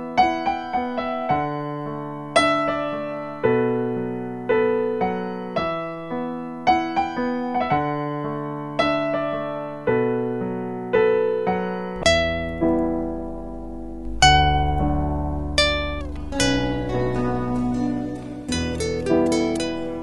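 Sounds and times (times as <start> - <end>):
slow piano chords: 0.0 - 20.0
deep bass note: 12.0 - 19.4.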